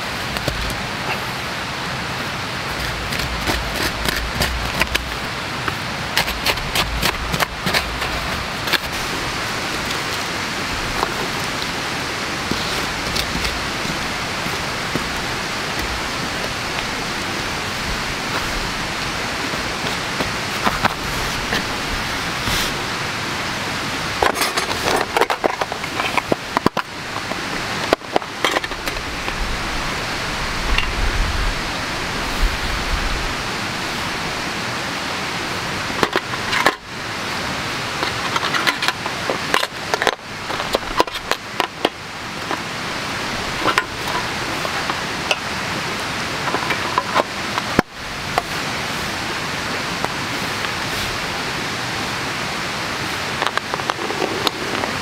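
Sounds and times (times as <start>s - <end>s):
rushing background noise: 0.0s - 55.0s
plastic box and metal tin clattering: 24.2s - 29.0s.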